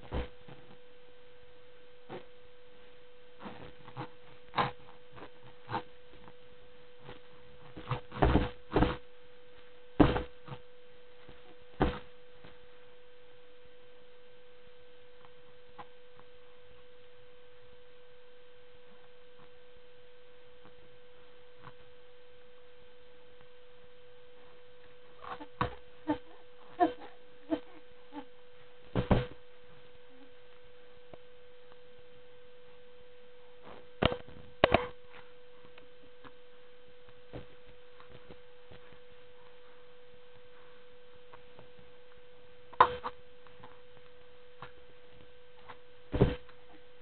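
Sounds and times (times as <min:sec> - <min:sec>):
steady electrical hum: 0:00.0 - 0:47.0.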